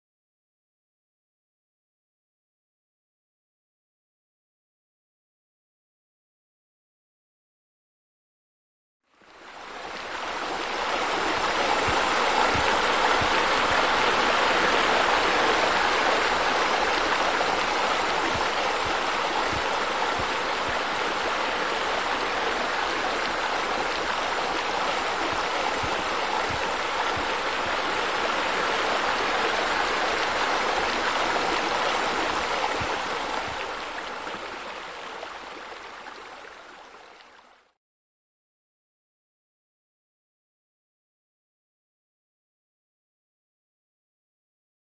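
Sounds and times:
water gurgling: 9.3s - 37.7s
water running and splashing: 9.7s - 37.5s.

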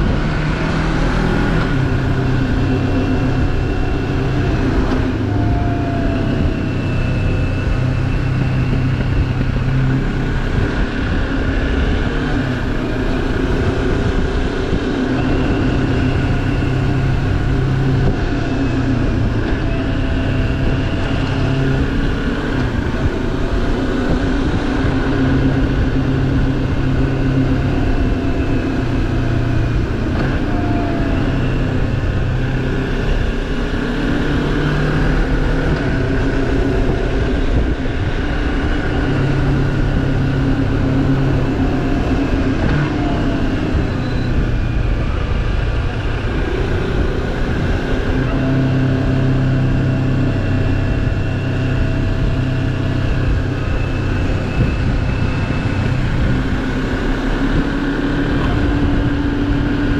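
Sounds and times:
motorcycle engine running: 0.0s - 59.9s
wind noise rushing: 0.0s - 59.9s.

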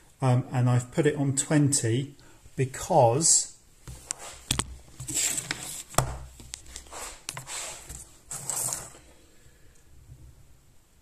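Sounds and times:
handling noise rustling and scraping: 3.8s - 9.2s.

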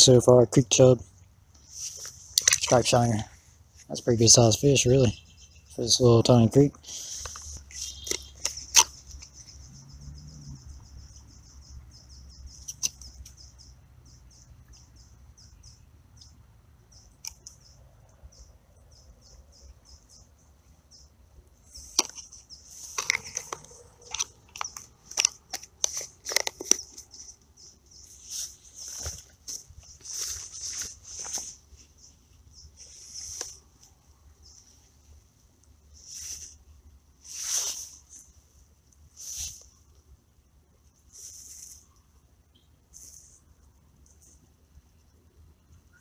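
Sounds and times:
high-pitched chirping: 7.0s - 21.1s
plastic container clicking and rattling: 22.8s - 27.1s.

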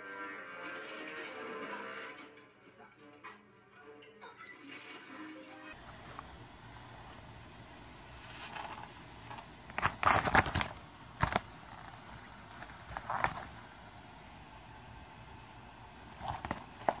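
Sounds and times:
paper crinkling: 8.2s - 13.8s
sharp paper rustles: 8.4s - 13.5s.

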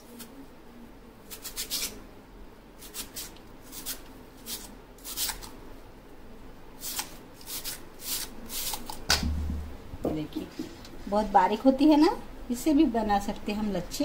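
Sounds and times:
potato scraping on grater: 1.3s - 2.0s, 2.8s - 5.5s, 6.8s - 9.0s.

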